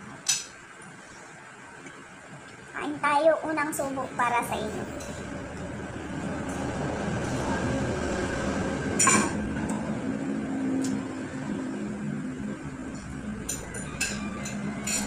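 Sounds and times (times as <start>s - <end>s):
steady low hum: 0.0s - 15.0s
dishes clinking: 9.0s - 9.4s, 13.4s - 15.0s.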